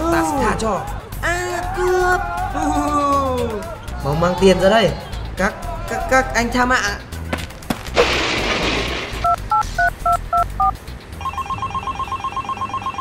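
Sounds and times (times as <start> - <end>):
telephone keypad dialing beeps: 9.2 - 13.0
telephone ringing: 9.2 - 13.0.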